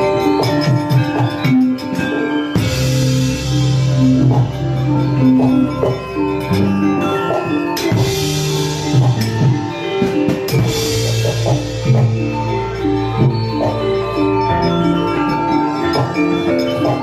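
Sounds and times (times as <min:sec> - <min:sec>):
gamelan metallophone notes: 0:00.0 - 0:17.0.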